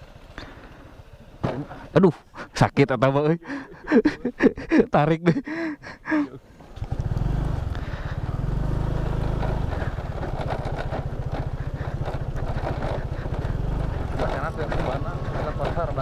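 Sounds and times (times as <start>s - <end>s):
motor scooter engine: 0.0s - 2.0s, 6.4s - 16.0s.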